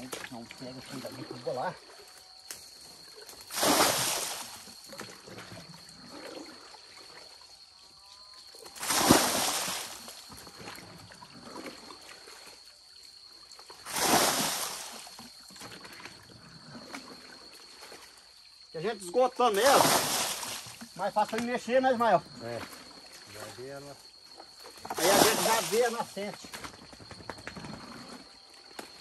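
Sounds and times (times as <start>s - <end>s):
water sloshing in bucket: 0.0s - 2.2s, 3.0s - 7.5s, 8.5s - 12.8s, 13.4s - 18.4s, 19.0s - 26.6s
water splashing onto ground: 3.2s - 5.1s, 8.8s - 10.8s, 13.8s - 16.1s, 19.5s - 21.6s, 24.9s - 26.4s.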